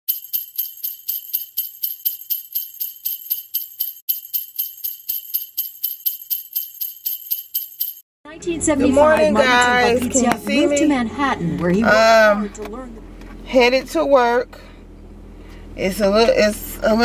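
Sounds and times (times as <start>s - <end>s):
sleigh bells jingling: 0.1s - 8.0s.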